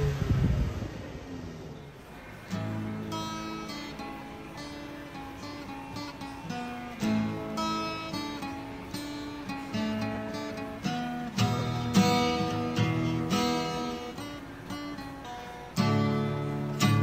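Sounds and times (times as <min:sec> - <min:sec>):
acoustic guitar strumming chords: 0:02.0 - 0:17.0.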